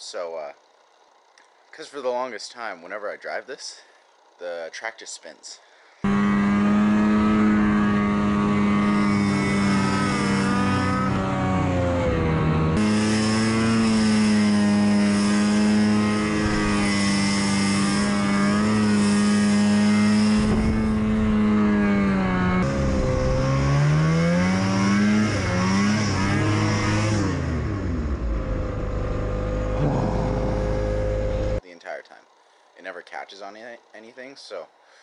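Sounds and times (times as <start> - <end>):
snowmobile engine revving high: 6.0 - 31.6.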